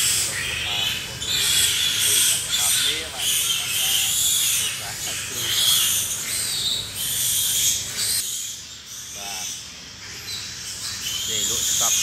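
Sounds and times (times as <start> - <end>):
shrill pig squeals: 0.0 - 8.2.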